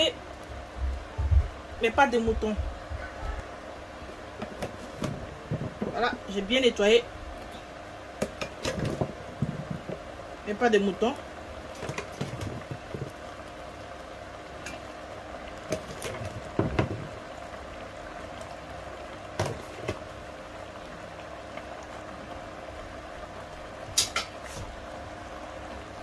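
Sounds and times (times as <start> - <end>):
pot bubbling at the boil: 0.0 - 26.0
knocks and splashes in pot: 4.4 - 6.1, 8.2 - 10.1, 11.7 - 13.2, 15.6 - 17.2, 19.3 - 20.1.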